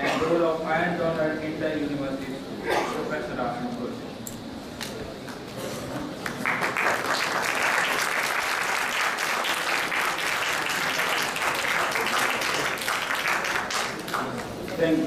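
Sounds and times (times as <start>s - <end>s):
audience applauding: 6.2s - 14.8s.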